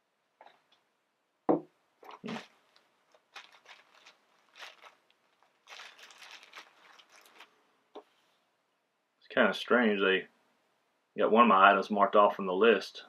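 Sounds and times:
paper and packaging rustling: 2.1s - 7.6s.

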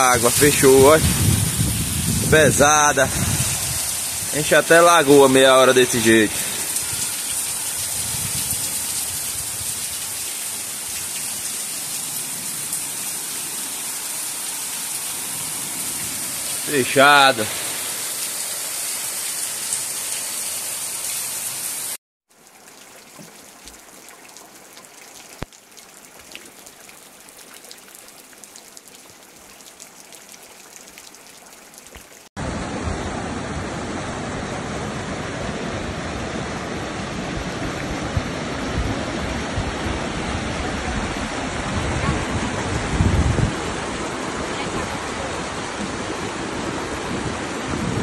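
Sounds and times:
rain patter with scattered drops: 0.0s - 32.4s
heavy rain: 0.0s - 48.0s
rushing water: 0.0s - 48.0s.

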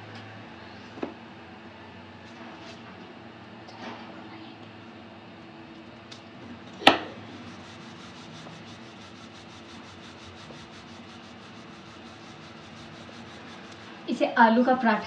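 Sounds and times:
steady low hum: 0.0s - 15.0s
rolling pin rubbing on dough: 7.1s - 14.0s.

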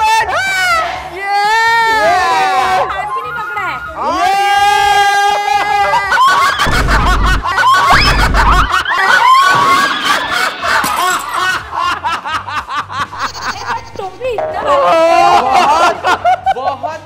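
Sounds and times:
people laughing: 5.2s - 17.0s
woman shrieking laugh: 5.4s - 11.9s
deep booms: 6.6s - 8.8s.

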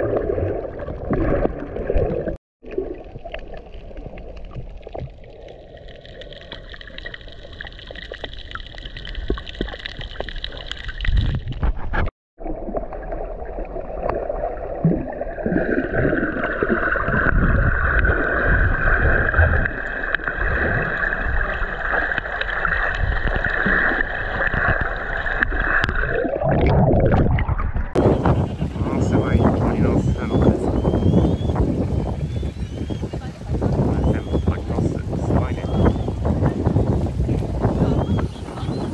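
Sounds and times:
water gurgling underwater: 0.0s - 38.9s
water splash: 0.0s - 38.9s
boat motors humming underwater: 12.4s - 38.9s.

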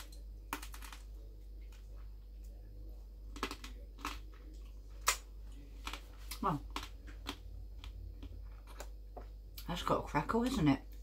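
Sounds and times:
pork crackling crunching: 3.3s - 8.9s.

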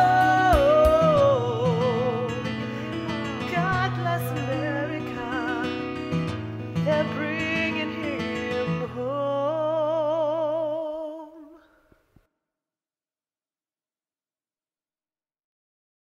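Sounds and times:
strummed acoustic guitar: 0.0s - 11.1s
woman singing: 0.0s - 11.7s.

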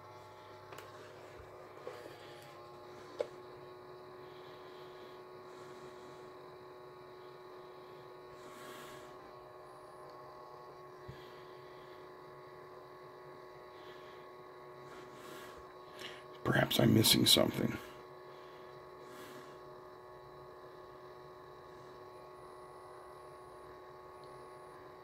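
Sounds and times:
faint electrical hum: 0.0s - 25.0s.

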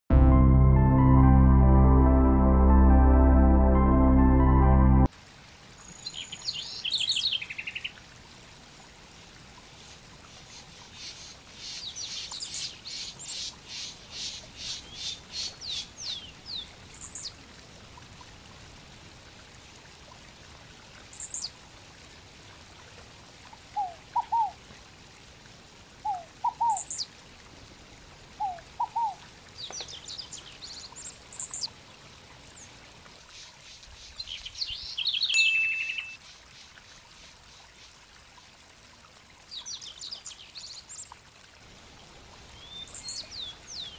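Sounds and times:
faint steady hiss: 5.0s - 43.9s
birds chirping: 34.2s - 36.2s
high whistled bird notes: 35.1s - 36.2s.

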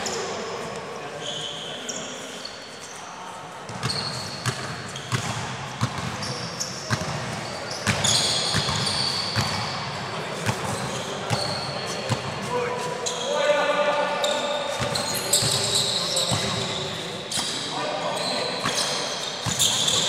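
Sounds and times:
sneaker squeaks on floor: 0.0s - 3.1s, 3.7s - 9.8s, 10.4s - 13.5s, 14.2s - 20.0s.

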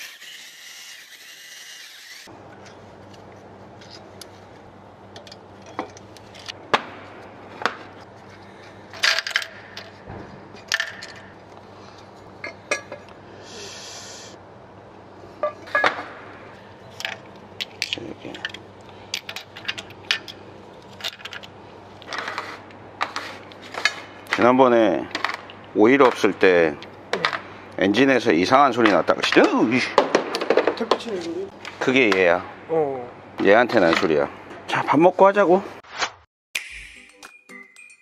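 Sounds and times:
metal engine parts clinking: 8.3s - 13.1s, 15.4s - 16.1s, 16.9s - 22.2s.

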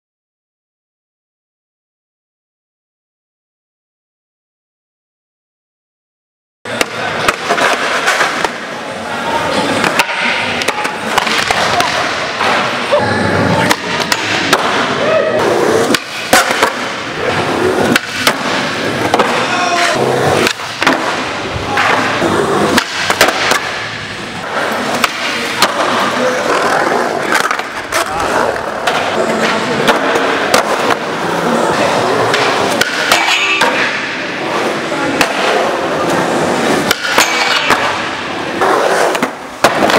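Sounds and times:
skateboard clacks: 6.7s - 8.8s, 13.6s - 39.9s
skateboards rolling on concrete: 7.0s - 39.9s
faint voices: 8.6s - 14.1s, 18.6s - 20.4s, 24.3s - 38.6s.

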